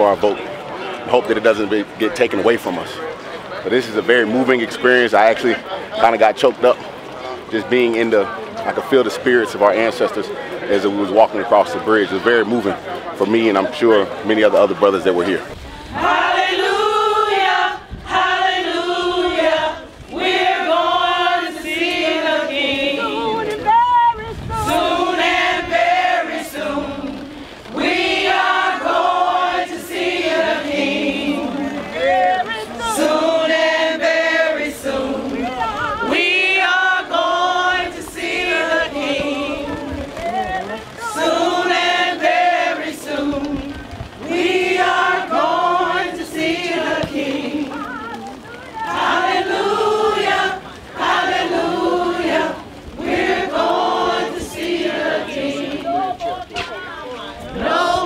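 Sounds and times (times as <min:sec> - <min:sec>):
group of voices singing: 0:11.6 - 0:58.0.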